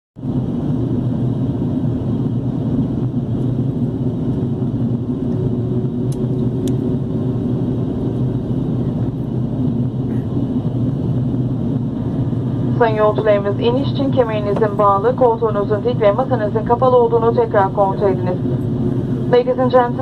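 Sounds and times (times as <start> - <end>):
rushing air: 0.2 - 14.7, 18.2 - 19.4
jet engines droning: 0.2 - 20.0.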